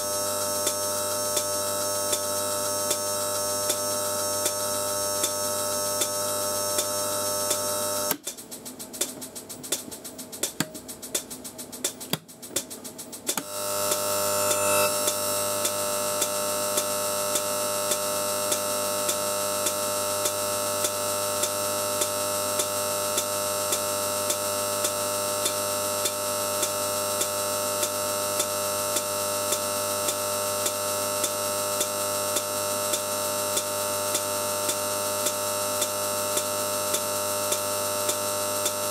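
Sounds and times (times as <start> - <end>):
irregular electrical crackling: 0.3 - 38.9
electrical discharge buzzing: 0.8 - 8.2, 13.3 - 23.7
sharp ticks: 7.5 - 21.6.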